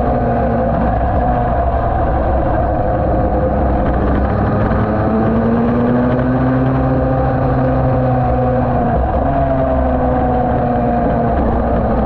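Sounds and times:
two-stroke racing engine running hard: 2.8s - 12.0s.

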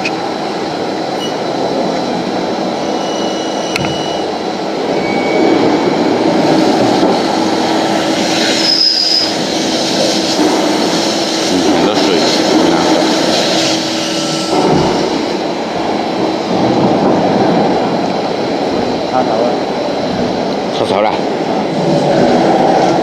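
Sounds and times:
lathe whirring and grinding: 0.0s - 23.0s
high squeal: 2.7s - 6.7s, 7.9s - 9.5s, 13.4s - 15.2s.

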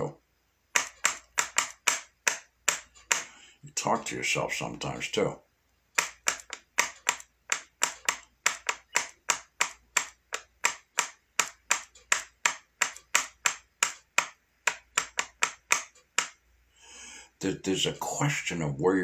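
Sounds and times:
sharp clicks: 0.7s - 3.4s, 6.0s - 16.4s.

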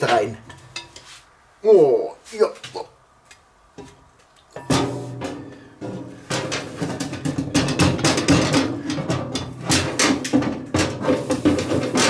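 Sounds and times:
metal lid clanking: 4.5s - 12.0s.

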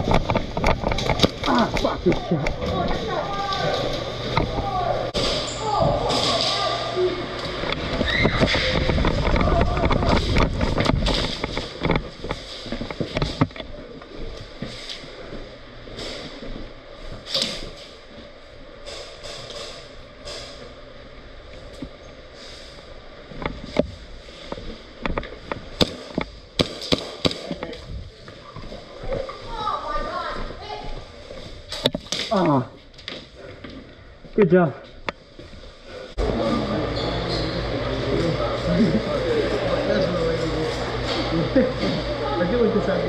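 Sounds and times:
rumbling microphone noise: 0.0s - 5.3s, 6.8s - 17.2s, 27.4s - 32.8s
sharp clicks and knocks: 23.4s - 27.8s
airsoft guns firing: 25.8s - 27.6s.

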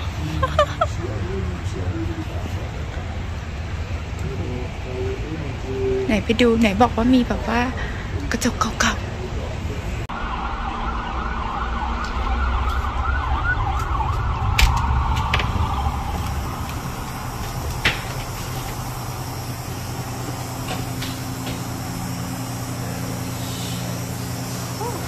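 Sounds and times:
low hum: 0.0s - 25.0s
low traffic rumble: 0.0s - 25.0s
emergency vehicle siren yelping: 10.1s - 19.0s.

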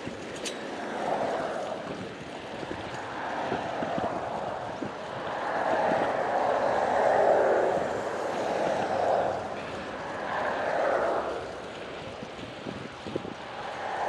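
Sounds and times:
road noise: 0.0s - 14.0s
rushing wind: 0.0s - 14.0s.

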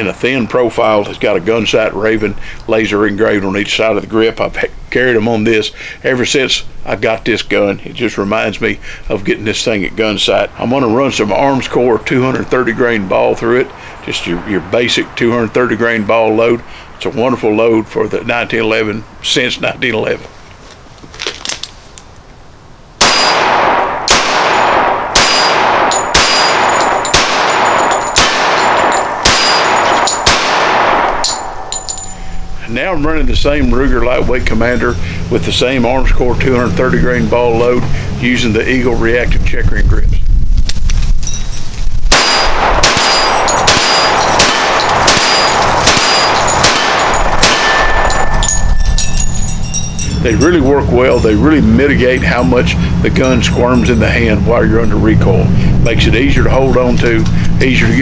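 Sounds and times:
pistol shots with ringing tail: 23.0s - 32.5s, 42.1s - 50.1s.

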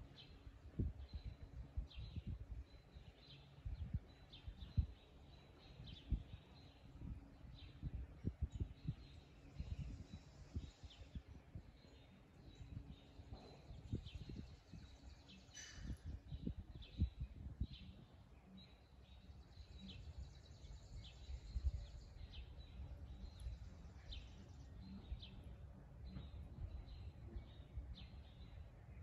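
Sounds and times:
small birds chirping: 0.0s - 29.0s
low rumble with bumps: 21.1s - 28.8s.

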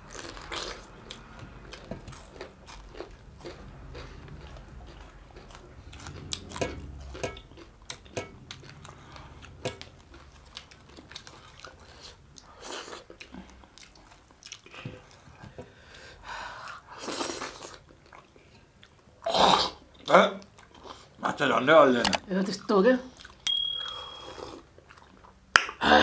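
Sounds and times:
chewing and crunching fried fish: 0.0s - 21.2s, 22.6s - 23.4s, 24.3s - 25.5s.

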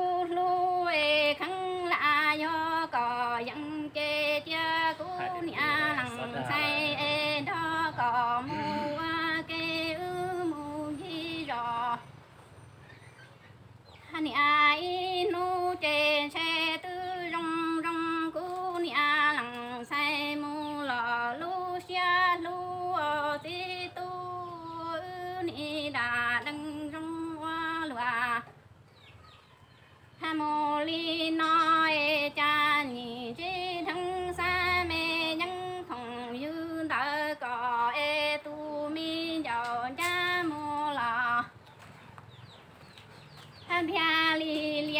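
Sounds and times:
woman singing unaccompanied: 0.0s - 12.2s, 13.8s - 44.9s.

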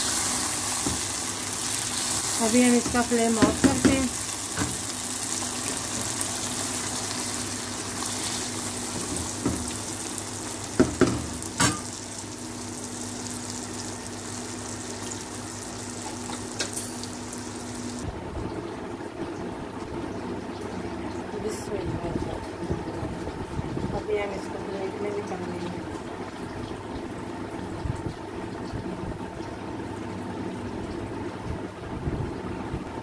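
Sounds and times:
gravy sizzling and bubbling in a pan: 0.0s - 19.4s.

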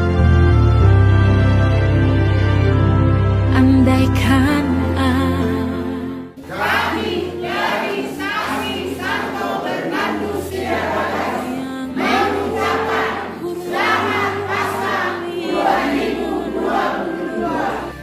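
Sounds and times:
choir singing: 5.0s - 18.0s.

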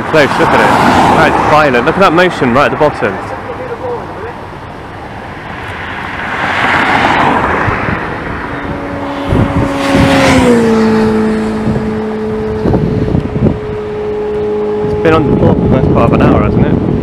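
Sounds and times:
vehicles passing on highway: 0.0s - 17.0s
droning tone dropping in pitch: 7.1s - 17.0s.

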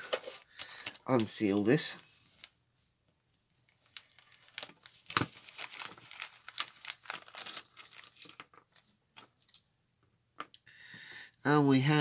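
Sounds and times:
plastic bag crinkling: 3.7s - 9.6s.

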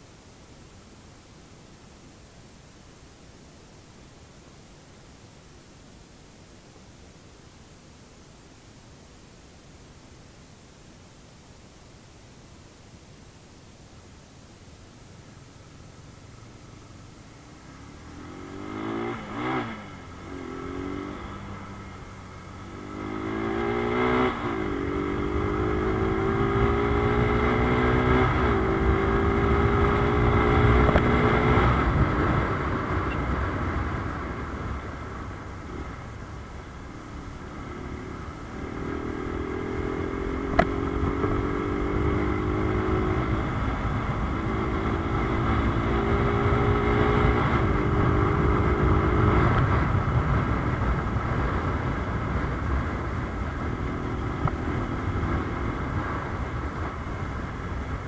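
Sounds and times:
motorcycle exhaust accelerating: 16.2s - 58.0s.

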